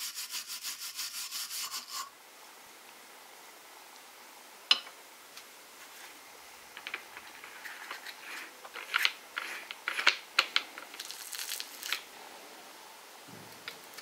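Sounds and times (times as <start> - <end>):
small metal clicks and scrapes: 6.8 - 12.0.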